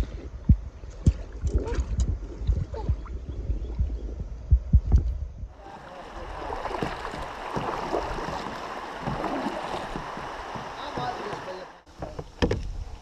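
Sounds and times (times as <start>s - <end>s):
water lapping around kayak: 5.5s - 13.0s
microphone handling thumps: 6.7s - 12.7s.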